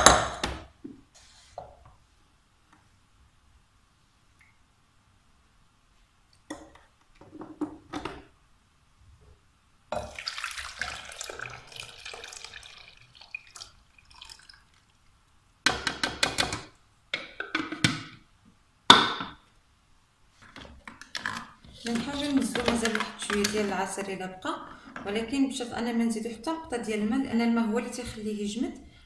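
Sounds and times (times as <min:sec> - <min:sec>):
juice pouring into glass bowl: 0:10.0 - 0:15.1.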